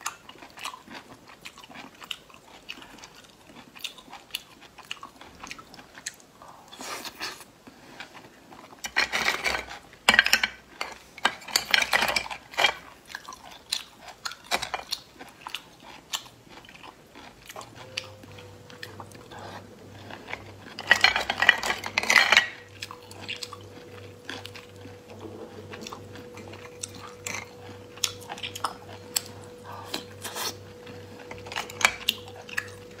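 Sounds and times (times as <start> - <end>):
slurping and chewing: 0.0 - 10.0, 12.2 - 33.0.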